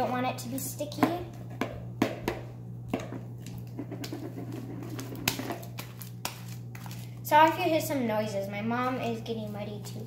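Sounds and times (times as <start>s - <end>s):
low steady hum: 0.0s - 10.0s
slime squelching: 3.3s - 10.0s.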